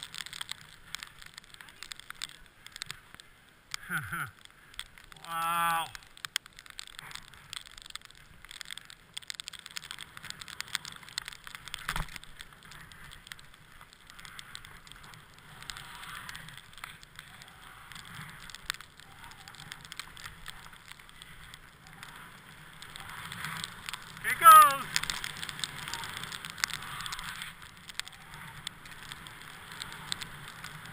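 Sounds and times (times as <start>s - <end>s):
skis hissing over snow: 14.4s - 18.4s, 19.1s - 30.9s.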